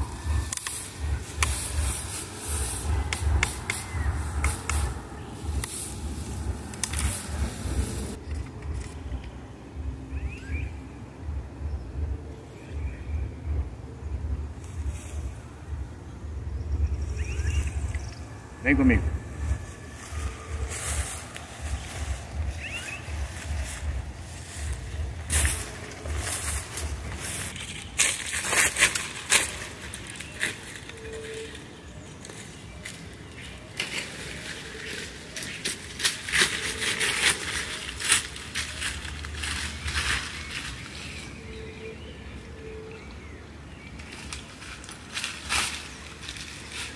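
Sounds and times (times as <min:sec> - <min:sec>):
wind buffeting microphone: 0:00.0 - 0:10.2, 0:11.0 - 0:28.1
leaves rustling: 0:00.0 - 0:11.0, 0:14.0 - 0:46.9
bird chirping: 0:00.0 - 0:45.1.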